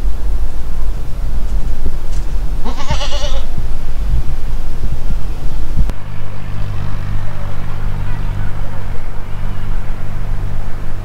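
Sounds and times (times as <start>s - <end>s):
heavy low rumble: 0.0s - 11.0s
steady low hum: 0.0s - 11.0s
farm animal bleating: 2.6s - 3.6s.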